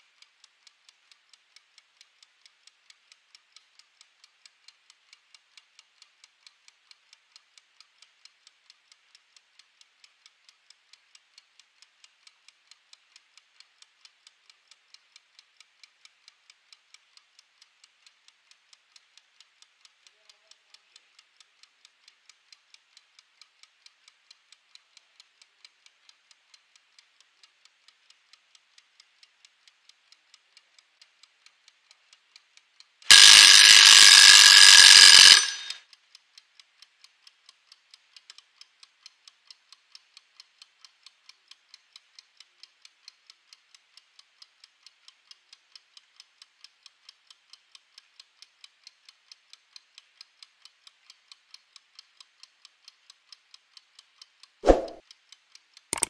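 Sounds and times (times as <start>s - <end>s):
kitchen timer ticking: 0.1s - 36.0s
timer bell ringing: 33.1s - 35.8s.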